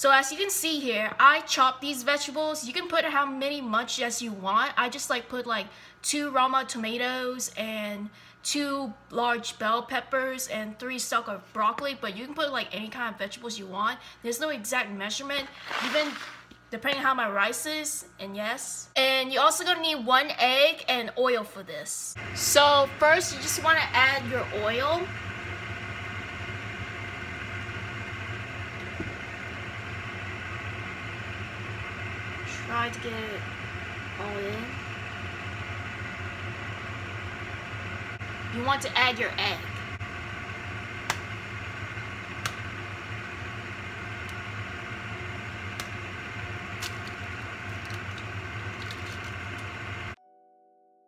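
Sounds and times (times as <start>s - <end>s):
fan motor humming: 22.2s - 50.2s
egg cracking clicks: 41.0s - 41.3s, 45.8s - 46.0s, 46.8s - 49.7s.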